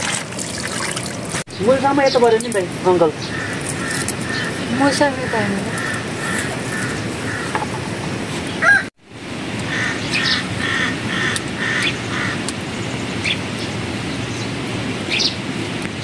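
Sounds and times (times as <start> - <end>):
animal calling: 2.9 - 7.9, 8.5 - 8.9, 9.7 - 12.5.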